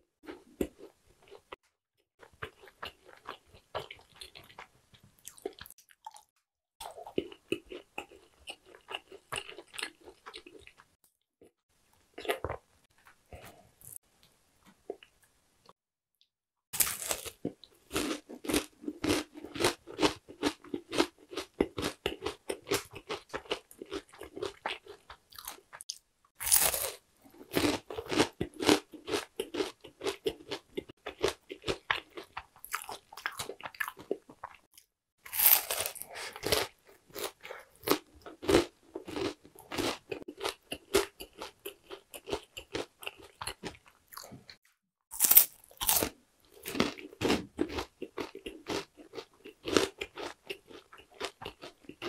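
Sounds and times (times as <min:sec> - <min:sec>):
crunchy snack chewing: 0:16.8 - 0:52.0.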